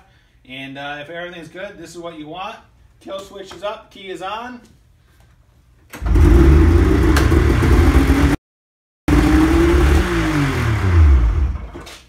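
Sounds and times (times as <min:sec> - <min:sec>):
snowmobile engine starting and idling: 0:06.0 - 0:08.4, 0:09.1 - 0:12.0.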